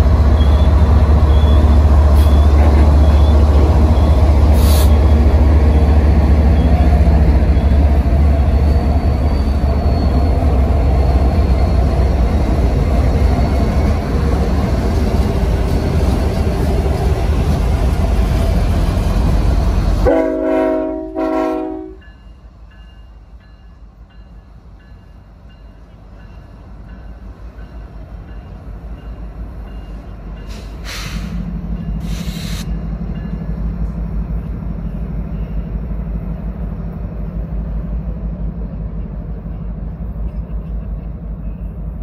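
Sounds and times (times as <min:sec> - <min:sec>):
freight train rumble: 0:00.0 - 0:42.0
locomotive drone: 0:00.0 - 0:42.0
short hissing bursts: 0:04.6 - 0:04.9, 0:30.5 - 0:31.4, 0:32.0 - 0:32.7
train horn blasts: 0:20.0 - 0:22.1.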